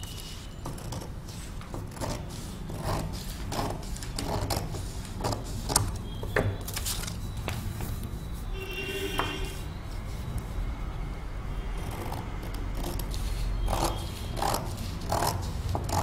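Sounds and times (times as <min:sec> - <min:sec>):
scissors cutting paper: 0:00.0 - 0:06.0, 0:11.8 - 0:16.0.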